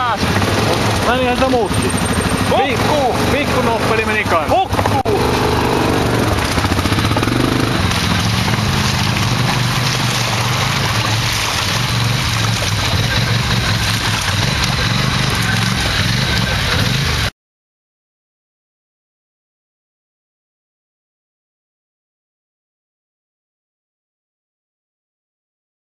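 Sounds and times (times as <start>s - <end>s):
quad bike engine running: 0.0s - 17.3s
muddy water sloshing: 0.2s - 17.3s.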